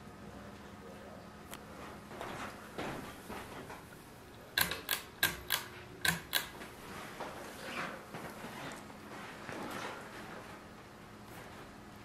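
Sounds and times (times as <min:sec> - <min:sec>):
ceiling fan motor hum: 0:00.0 - 0:12.0
pull-chain switch clicks: 0:04.6 - 0:06.6.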